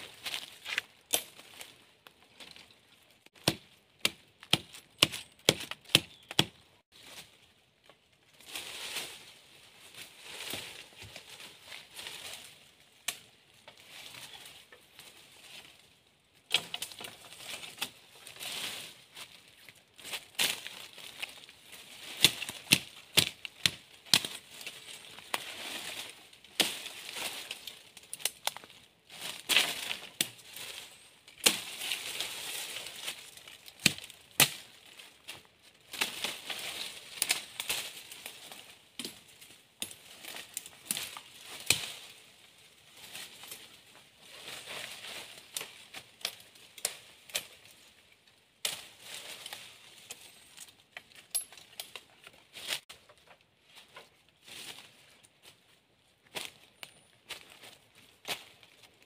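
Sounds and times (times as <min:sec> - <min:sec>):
dry leaves and brush rustling: 0:00.0 - 0:59.0
machete chopping sticks: 0:03.4 - 0:06.6, 0:22.2 - 0:24.4, 0:33.8 - 0:34.6.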